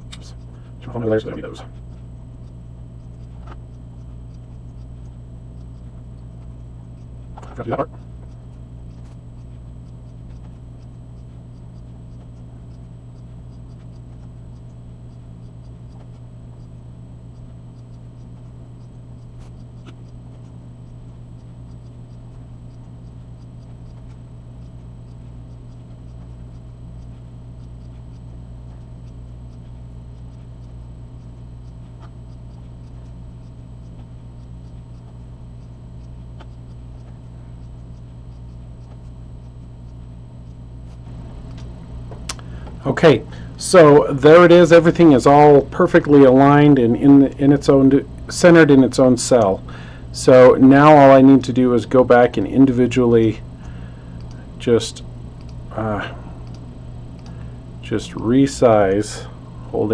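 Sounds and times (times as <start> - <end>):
low electrical hum: 0.0 - 59.9
computer mouse clicks: 56.4 - 57.4.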